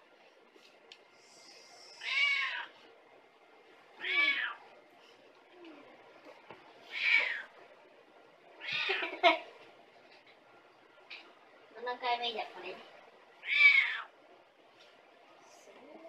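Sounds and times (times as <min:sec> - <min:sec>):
cat meowing: 0:02.0 - 0:02.7, 0:04.0 - 0:04.6, 0:06.9 - 0:07.6, 0:08.6 - 0:09.1, 0:13.4 - 0:14.1.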